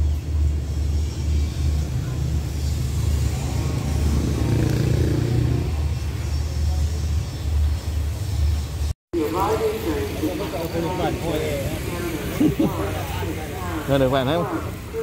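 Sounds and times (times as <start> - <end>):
distant diesel train engine rumbling: 5.2 - 15.0.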